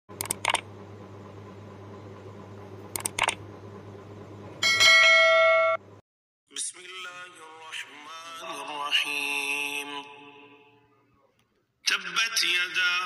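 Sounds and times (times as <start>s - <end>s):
sharp clicks: 0.2s - 0.7s, 2.9s - 3.4s.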